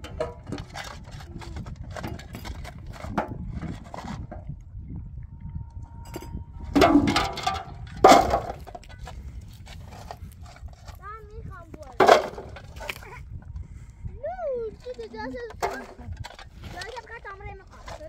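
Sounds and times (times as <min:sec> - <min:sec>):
pick striking stony ground: 0:06.2 - 0:11.0, 0:11.7 - 0:13.1.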